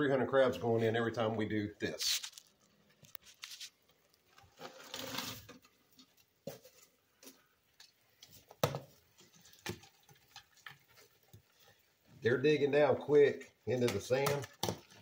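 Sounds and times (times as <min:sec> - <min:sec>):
crabs clicking and tapping: 0:03.8 - 0:12.2, 0:13.7 - 0:15.0.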